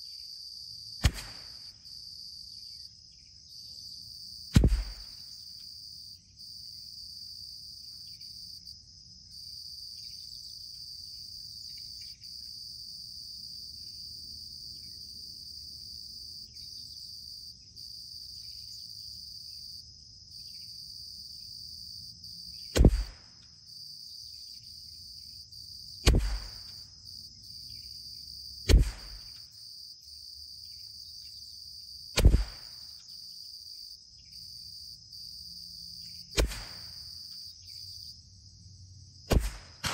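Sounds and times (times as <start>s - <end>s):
insects droning: 0.0s - 39.9s
rifle shots: 1.0s - 1.7s, 4.6s - 5.2s, 22.8s - 23.2s, 26.1s - 26.7s, 28.7s - 29.4s, 32.2s - 32.8s, 36.4s - 37.0s, 39.3s - 39.9s.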